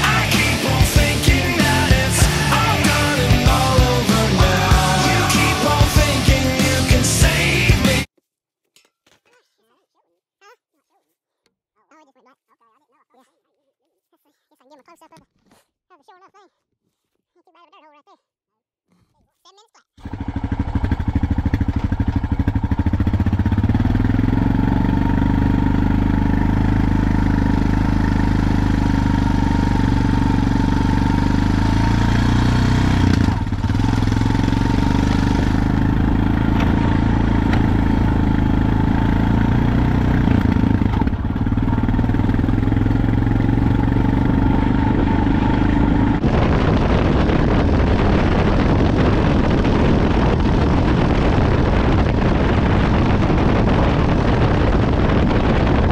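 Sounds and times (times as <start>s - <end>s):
vehicle engine running: 0.0s - 8.1s, 20.0s - 55.9s.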